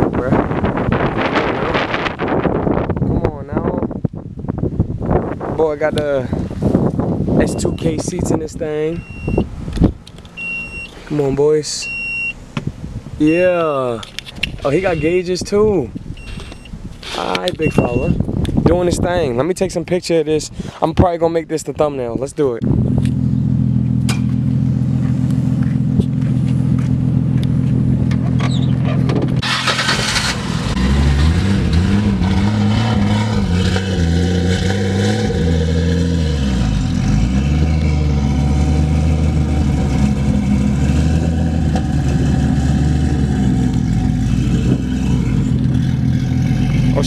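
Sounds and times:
car exhaust idling and revving: 0:22.6 - 0:47.0.

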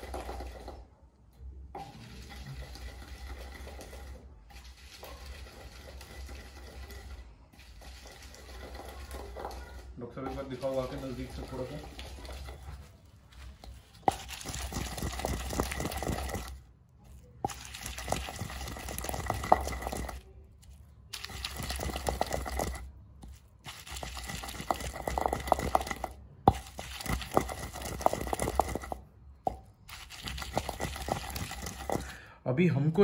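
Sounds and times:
pestle grinding in mortar: 0:00.0 - 0:00.8, 0:01.7 - 0:32.2.

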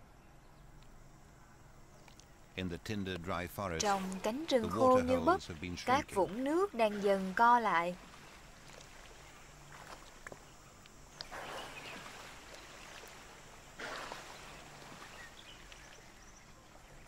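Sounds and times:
water sloshing and splashing: 0:03.8 - 0:10.5, 0:11.1 - 0:16.6.

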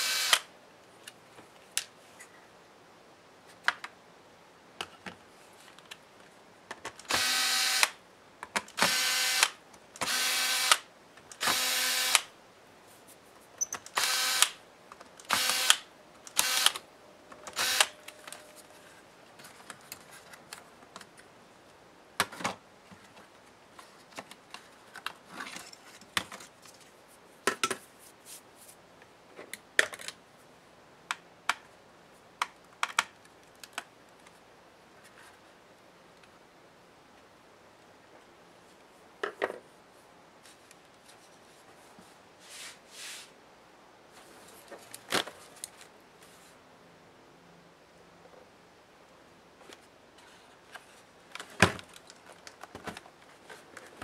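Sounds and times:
electric screwdriver running: 0:00.0 - 0:00.4, 0:07.1 - 0:07.9, 0:08.8 - 0:10.8, 0:11.4 - 0:12.3, 0:14.0 - 0:14.6, 0:15.3 - 0:15.8, 0:16.4 - 0:16.8, 0:17.6 - 0:17.9.

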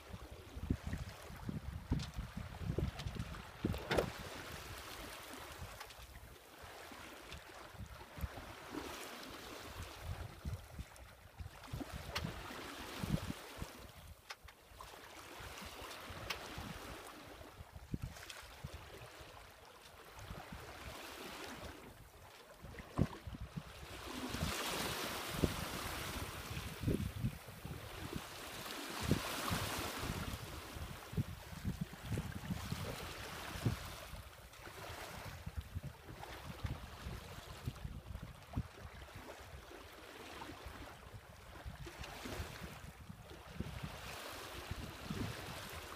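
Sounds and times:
water lapping along hull: 0:00.0 - 0:45.9
wind buffeting microphone: 0:00.6 - 0:04.8, 0:24.3 - 0:34.2, 0:35.1 - 0:38.4, 0:44.7 - 0:45.7.

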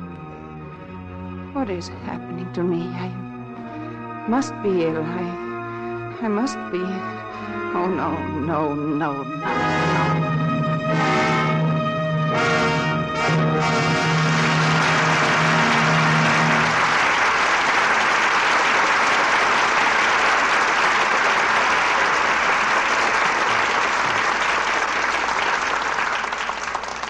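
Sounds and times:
orchestra final chord: 0:09.3 - 0:24.0
audience applauding: 0:13.3 - 0:27.0.

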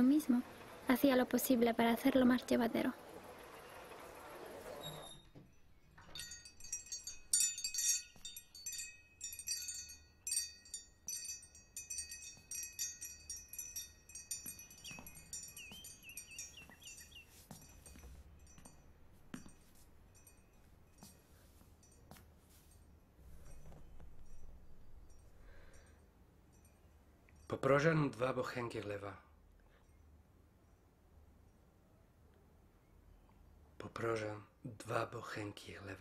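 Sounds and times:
metal wind chime jangling: 0:05.5 - 0:27.6.

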